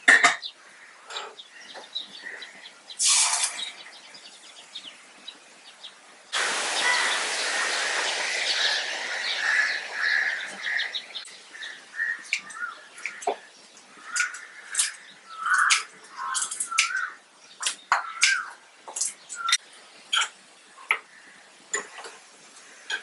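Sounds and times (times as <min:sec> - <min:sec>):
small birds chirping: 0:00.3 - 0:23.0
short hiss: 0:03.0 - 0:03.6, 0:06.3 - 0:11.2
tomatoes sizzling in hot oil: 0:06.4 - 0:12.2.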